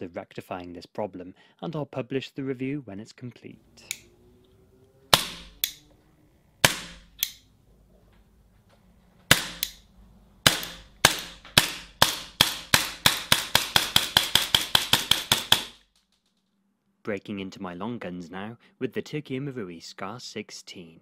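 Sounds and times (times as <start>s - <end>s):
air pistol shots: 5.1s - 5.8s, 6.6s - 7.4s, 9.3s - 9.8s, 10.4s - 15.8s.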